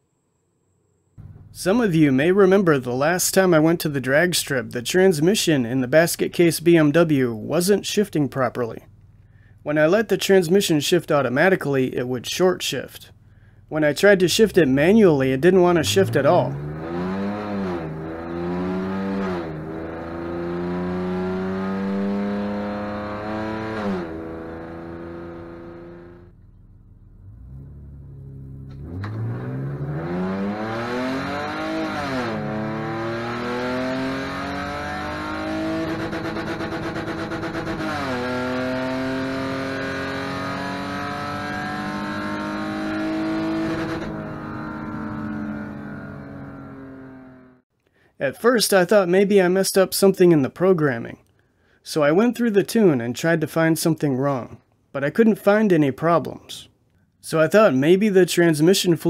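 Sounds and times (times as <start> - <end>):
car engine accelerating: 1.2 - 2.4, 13.0 - 47.6.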